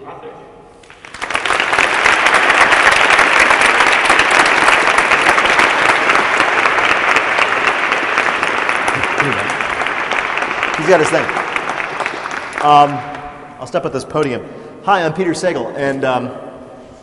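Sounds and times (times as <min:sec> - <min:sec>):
audience applause: 0:00.8 - 0:13.5.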